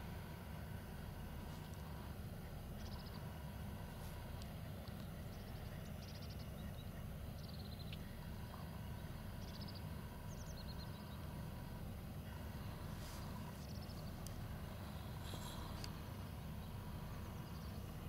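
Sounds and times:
boat engine drone: 0.0 - 18.0
small bird chirping: 2.7 - 3.3, 4.9 - 11.3.

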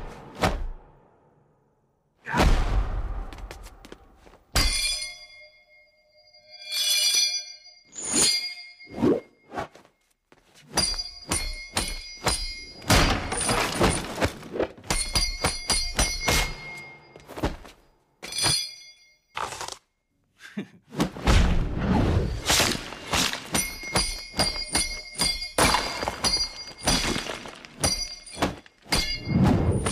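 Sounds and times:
punches and body blows: 0.0 - 0.9, 21.0 - 29.9.

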